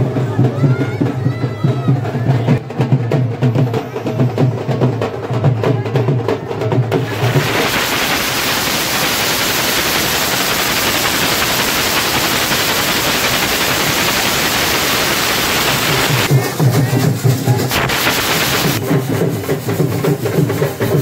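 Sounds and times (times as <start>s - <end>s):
loud static hiss: 7.0s - 18.8s.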